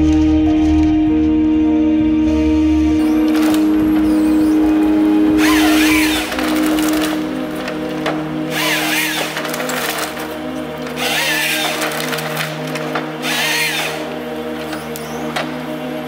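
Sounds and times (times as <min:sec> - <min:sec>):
diesel engine and hydraulics: 0:02.2 - 0:16.0
chainsaw cutting wood whine: 0:03.0 - 0:16.0.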